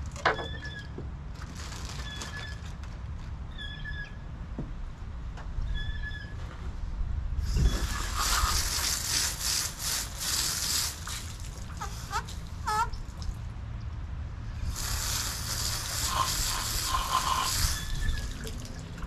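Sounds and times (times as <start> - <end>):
hose spray nozzle hissing: 7.6 - 12.2, 14.6 - 18.3.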